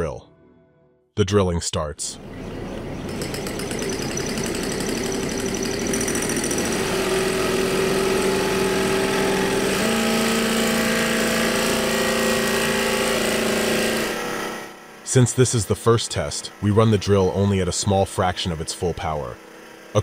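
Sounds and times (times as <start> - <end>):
electric drill grinding into stone: 3.0 - 14.8.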